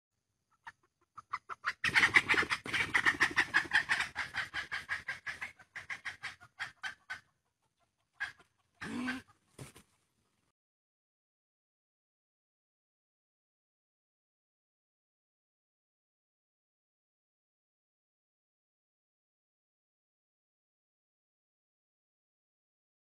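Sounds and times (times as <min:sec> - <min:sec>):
jungle fowl alarm cackling: 0:00.6 - 0:07.4, 0:08.0 - 0:09.4.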